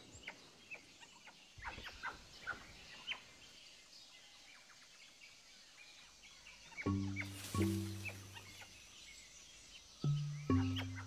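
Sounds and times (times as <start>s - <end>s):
high downward-sliding chirps: 6.9s - 8.5s, 10.0s - 11.0s.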